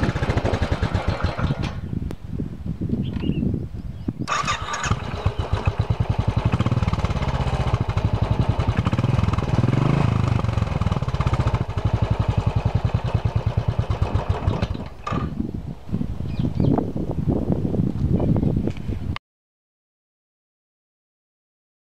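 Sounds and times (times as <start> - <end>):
motorcycle engine revving: 0.0 - 1.9, 4.3 - 15.4
motorcycle engine starting and idling: 0.0 - 1.9, 4.3 - 15.5.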